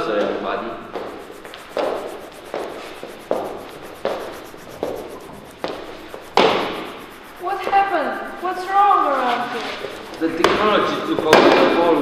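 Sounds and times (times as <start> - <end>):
footsteps on hard floor: 5.6 - 6.7.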